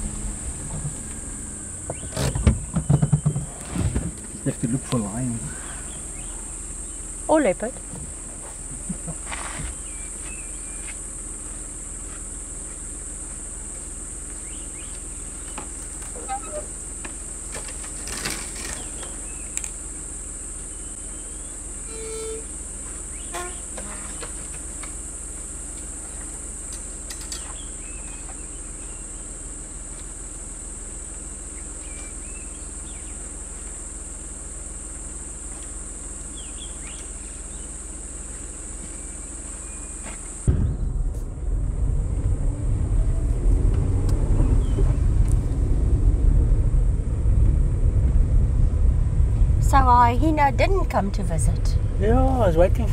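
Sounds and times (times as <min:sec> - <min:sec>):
high-pitched insect drone: 0:00.0 - 0:16.9, 0:18.7 - 0:40.5
car engine idling: 0:00.0 - 0:52.9
short squeak: 0:16.2 - 0:16.8, 0:21.8 - 0:22.5, 0:23.2 - 0:24.3.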